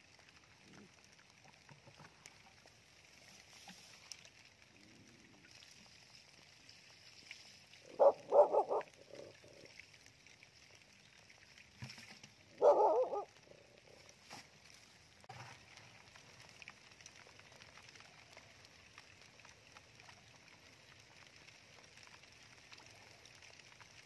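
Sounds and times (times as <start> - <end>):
water trickling along a ditch: 0.0 - 24.0
animal calling: 7.8 - 9.7, 12.6 - 14.0.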